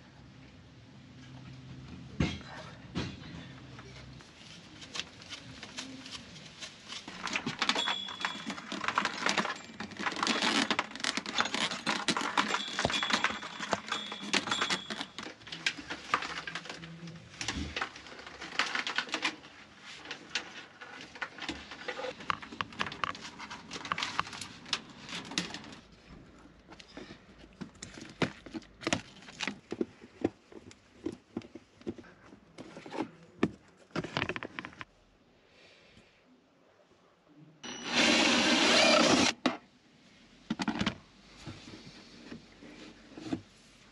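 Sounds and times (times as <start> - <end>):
tools clicking and rattling: 7.4 - 16.8.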